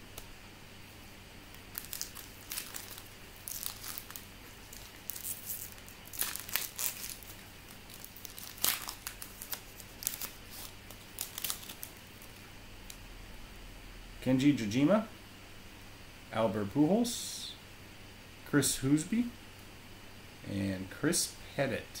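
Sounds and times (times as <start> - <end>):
foil wrapper crinkling and tearing: 1.5 - 12.4.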